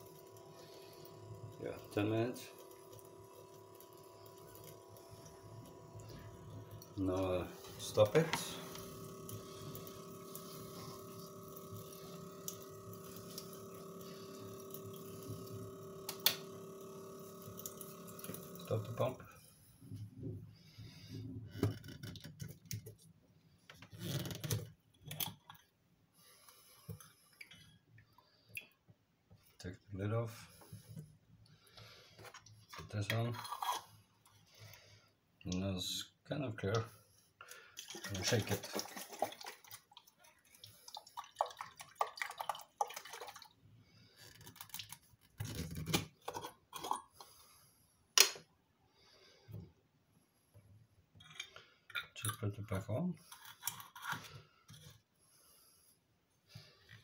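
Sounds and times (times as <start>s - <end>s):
water sloshing in a plastic jar: 37.5s - 43.6s.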